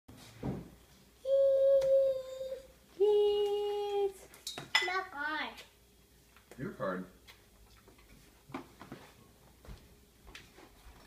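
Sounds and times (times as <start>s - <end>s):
toddler wavering call: 1.2s - 3.4s
toddler singing long notes: 1.2s - 3.9s.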